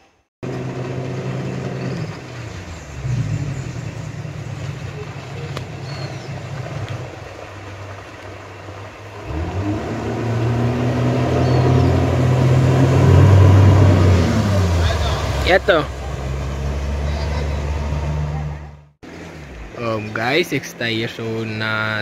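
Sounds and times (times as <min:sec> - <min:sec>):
outboard motor running: 0:00.4 - 0:21.8.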